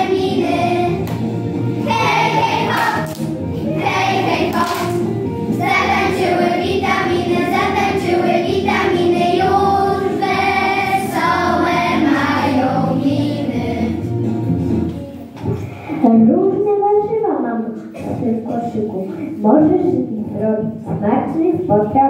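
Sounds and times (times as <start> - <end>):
children singing together: 0.0 - 14.2
musical accompaniment: 0.0 - 16.0.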